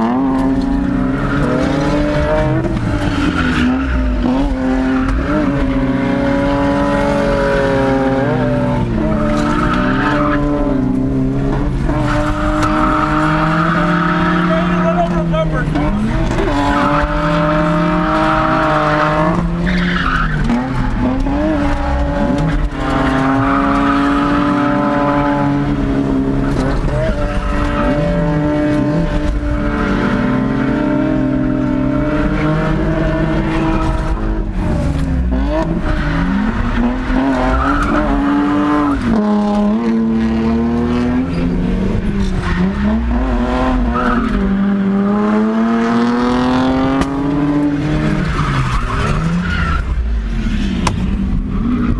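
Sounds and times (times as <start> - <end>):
tyres skidding and squealing: 0.0 - 51.9.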